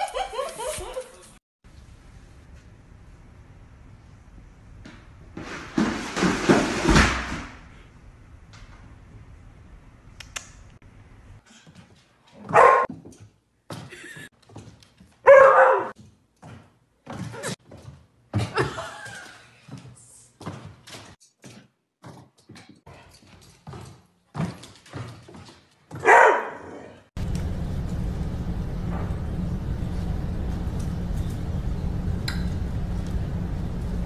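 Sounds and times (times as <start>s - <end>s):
plastic basket clattering down stairs: 5.4s - 7.6s.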